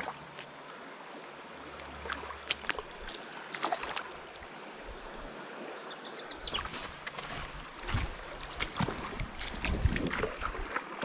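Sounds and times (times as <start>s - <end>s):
river running over stones: 0.0s - 11.0s.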